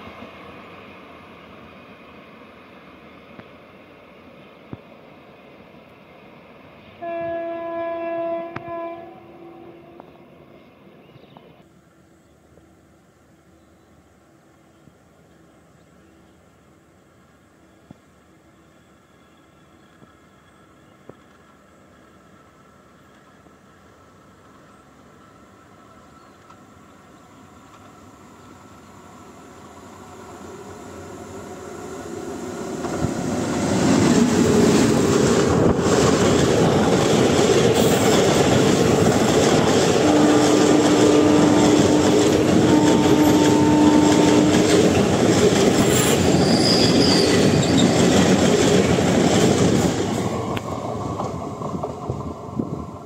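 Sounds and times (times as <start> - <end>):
express train passing: 0.0 - 53.0
train wheel squeal: 17.7 - 21.4, 41.7 - 48.4.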